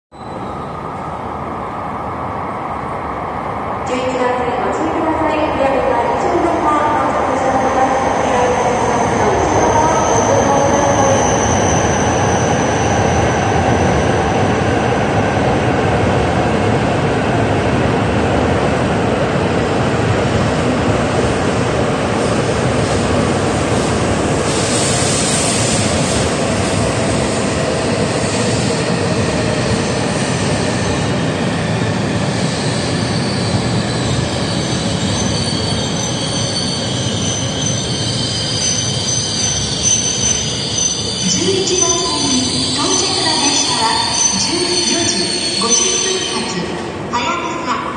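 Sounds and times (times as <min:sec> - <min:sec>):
high squealing brakes: 0:00.1 - 0:01.1, 0:07.9 - 0:14.5, 0:28.3 - 0:46.6
train rushing and rumbling: 0:00.2 - 0:47.9.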